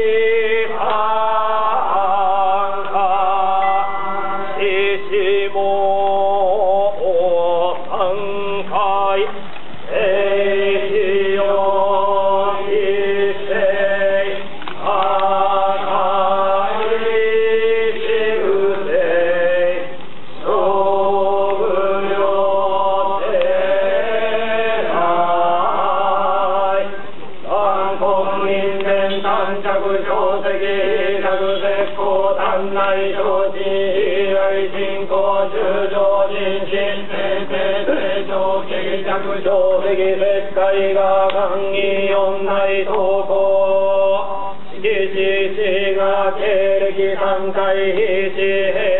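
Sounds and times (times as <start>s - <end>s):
group chanting in unison: 0.0s - 48.9s.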